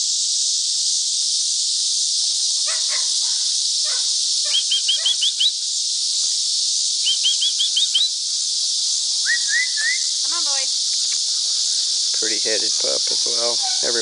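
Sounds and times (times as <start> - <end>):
insect chorus: 0.0 - 14.0
bird chirping: 2.6 - 5.6, 7.0 - 14.0.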